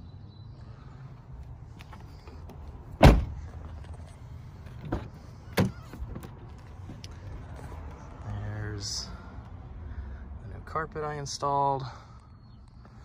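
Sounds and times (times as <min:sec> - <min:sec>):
car door shutting: 0:01.9 - 0:03.5, 0:04.7 - 0:07.0.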